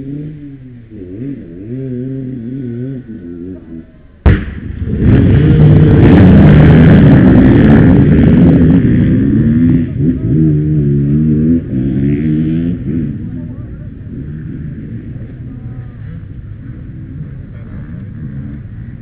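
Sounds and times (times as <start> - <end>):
dirt bike engines revving: 0.0 - 19.0
sharp crack: 4.2 - 8.0.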